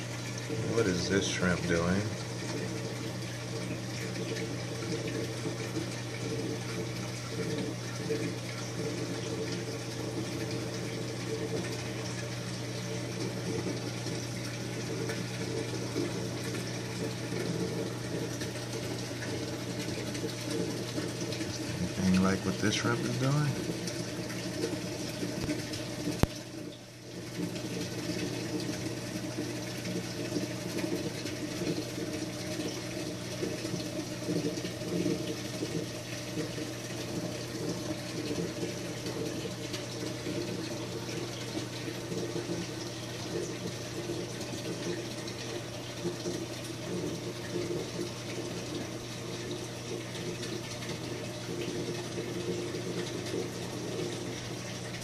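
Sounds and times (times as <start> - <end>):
low pump hum: 0.0 - 55.0
water running and splashing: 0.0 - 55.0.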